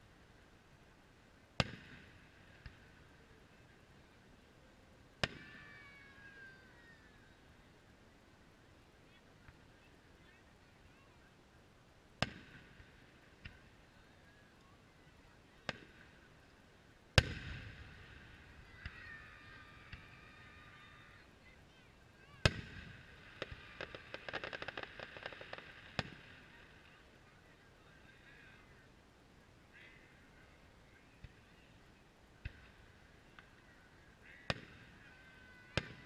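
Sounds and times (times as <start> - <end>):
firework shells bursting: 22.4 - 26.9.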